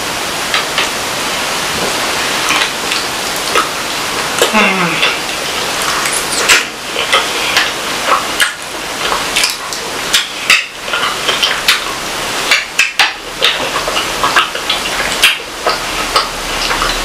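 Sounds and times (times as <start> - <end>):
chewing and mouth clicks: 2.4 - 11.9, 12.5 - 17.0.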